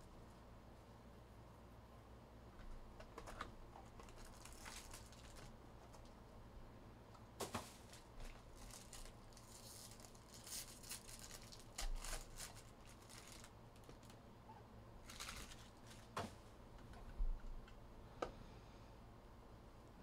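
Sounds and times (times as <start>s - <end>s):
foil pack crinkling and tearing: 3.2s - 6.2s, 7.4s - 14.2s, 15.0s - 16.2s.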